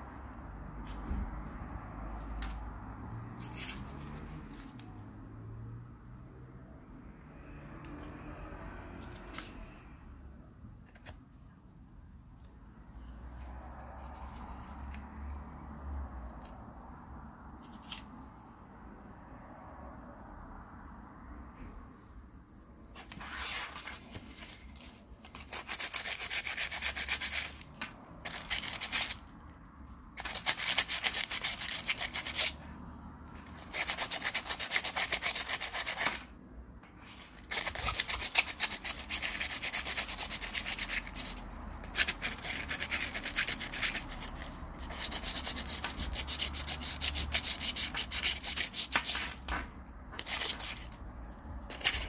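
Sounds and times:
sandpaper rubbing on metal: 37.5 - 49.4.

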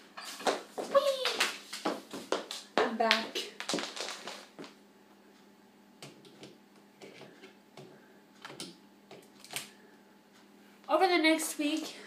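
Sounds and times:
light knocks and shuffles on floor: 0.2 - 4.8.

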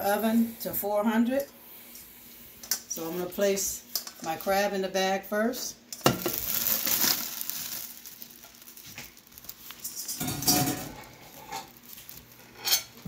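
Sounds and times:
plastic bag rustling: 6.0 - 13.0.

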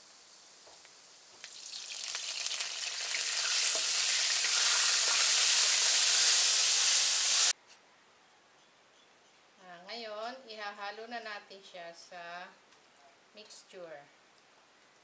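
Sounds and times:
oil sizzling in a wok: 0.0 - 7.6.

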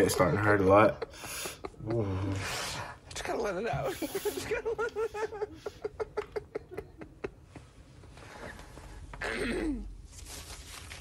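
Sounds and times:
man giggling: 0.1 - 2.4.

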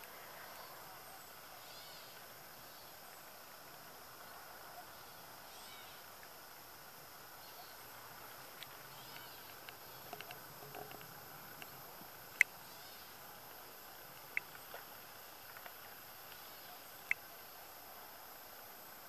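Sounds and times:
faint ticks: 8.5 - 17.6.

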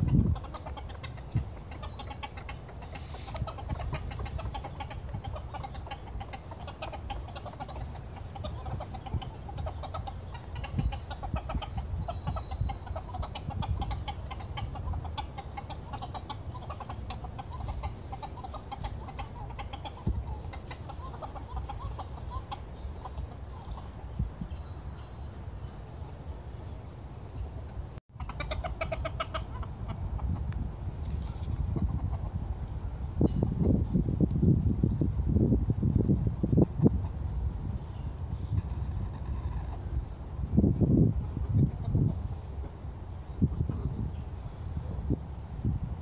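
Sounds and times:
hens clucking softly: 0.0 - 24.3, 28.2 - 32.7, 38.4 - 40.4.

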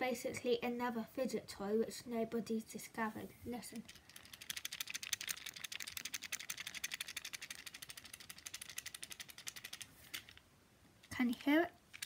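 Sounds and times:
fidget cube rattling: 3.7 - 10.4, 11.0 - 12.0.

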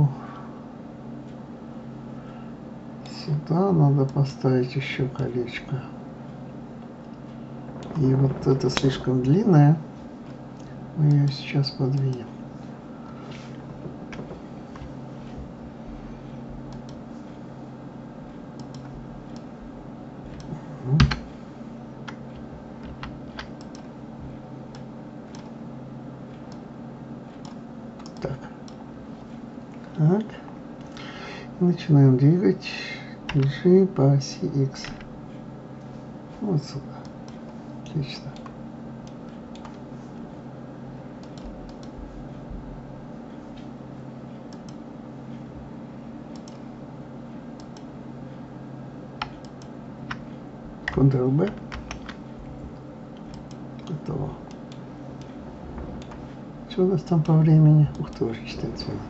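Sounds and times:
low hum: 0.0 - 59.0
computer mouse clicks: 16.7 - 17.0, 18.6 - 19.5, 22.8 - 23.9, 24.7 - 25.6, 27.4 - 28.8, 38.4 - 39.8, 41.2 - 42.0, 44.5 - 44.8, 46.3 - 46.6, 47.6 - 47.9, 49.2 - 50.3.

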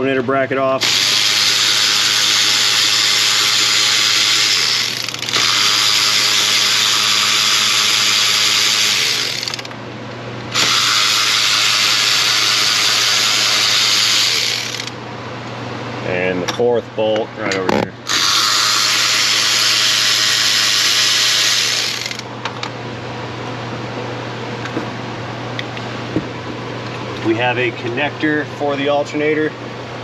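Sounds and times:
electric ratchet spinning bolts: 0.8 - 9.8, 10.5 - 15.0, 18.0 - 22.3.

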